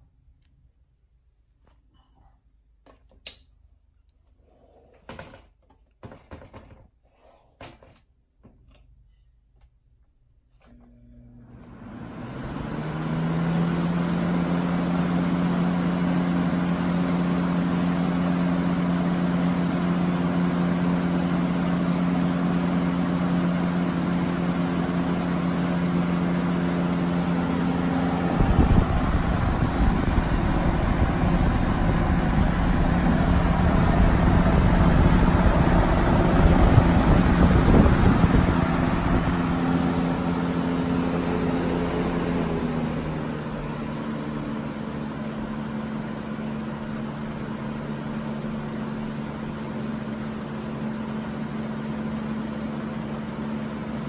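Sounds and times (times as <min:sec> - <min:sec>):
box fan motor hum and whoosh: 0:10.8 - 0:54.0.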